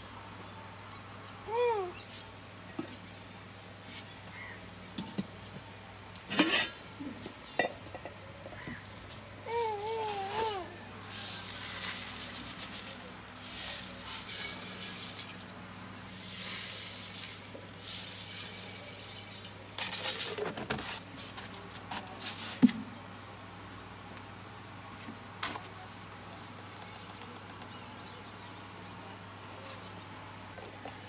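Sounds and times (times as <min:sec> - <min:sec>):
wood fire hissing and crackling: 0:00.0 - 0:31.0
metal kitchenware clinking: 0:06.3 - 0:06.8.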